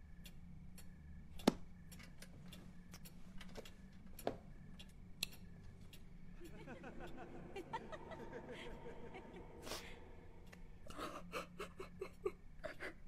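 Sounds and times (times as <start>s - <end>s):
faint steady hum: 0.0s - 13.0s
soft ticks and clicks: 0.1s - 7.4s.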